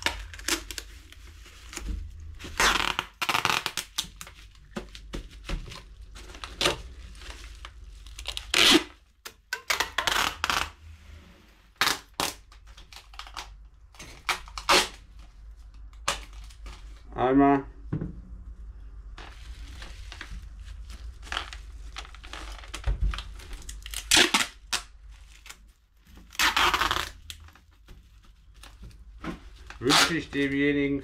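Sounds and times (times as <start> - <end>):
plastic bag crinkling: 0.0 - 10.8, 19.2 - 31.0.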